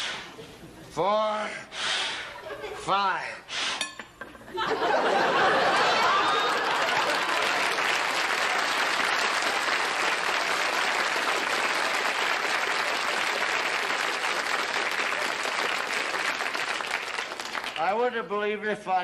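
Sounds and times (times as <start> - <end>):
audience applauding: 4.8 - 18.1.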